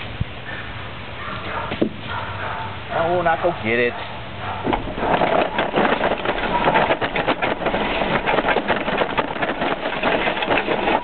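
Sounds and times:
lawnmower clattering and rattling: 4.6s - 11.0s.

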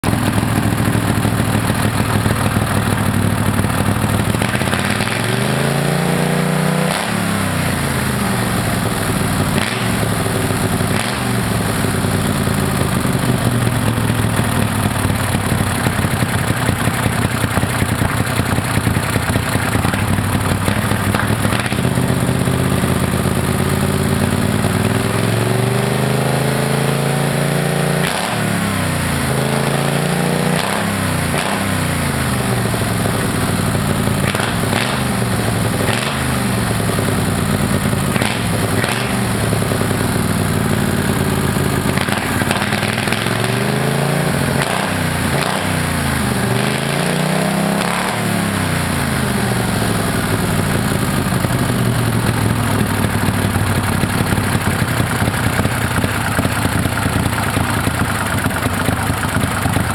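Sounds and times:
boat engine revving: 4.2s - 12.1s, 34.2s - 36.6s, 37.2s - 50.4s.

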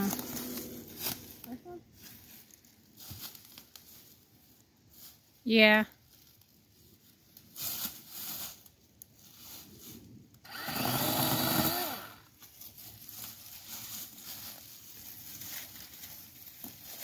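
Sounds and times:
feet rustling in dry leaves: 0.0s - 10.0s, 12.3s - 17.0s
electric chainsaw cutting: 10.4s - 12.2s.

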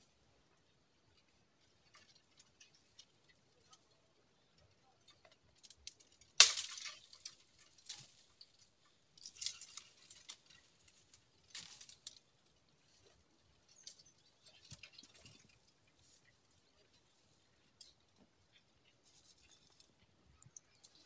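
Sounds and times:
twigs crackling and snapping: 5.0s - 21.0s.

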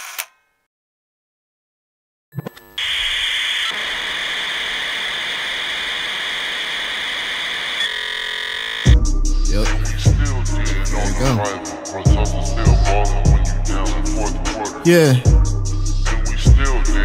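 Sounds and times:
static hiss with high whine: 2.8s - 7.8s
hip-hop beat with heavy bass: 8.9s - 17.0s.

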